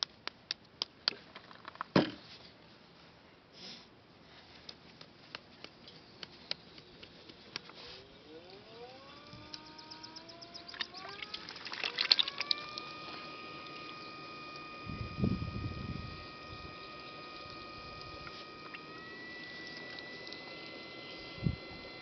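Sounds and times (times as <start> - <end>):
pottery wheel motor whining: 7.6 - 22.0.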